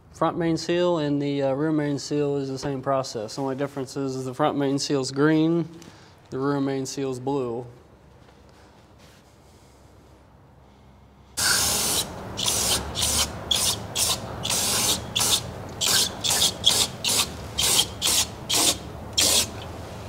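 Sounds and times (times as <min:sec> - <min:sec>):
aerosol spray hissing: 0:11.4 - 0:19.5.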